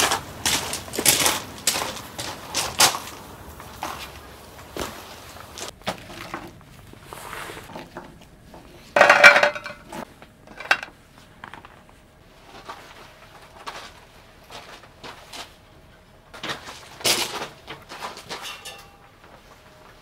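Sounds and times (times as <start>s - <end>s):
dishes and cutlery clattering: 9.0s - 10.9s, 18.2s - 19.1s.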